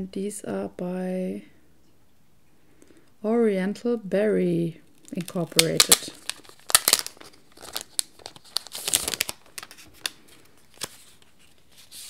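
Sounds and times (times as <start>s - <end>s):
plastic sleeve crinkling: 4.9s - 12.0s.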